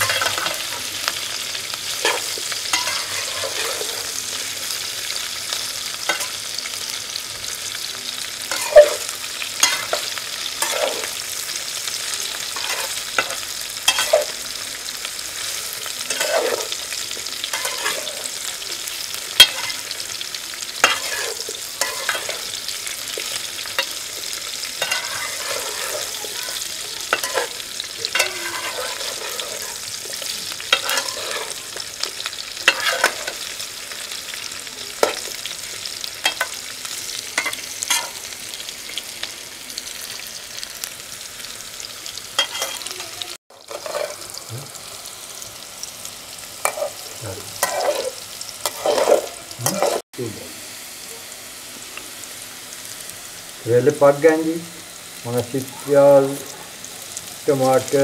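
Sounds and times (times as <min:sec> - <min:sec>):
metal spatula scraping a pan: 0:00.0 - 0:05.2, 0:08.5 - 0:14.4, 0:15.4 - 0:34.4, 0:35.0 - 0:35.4, 0:42.4 - 0:44.4, 0:46.6 - 0:50.0
vegetables sizzling in a pan: 0:00.0 - 0:58.0.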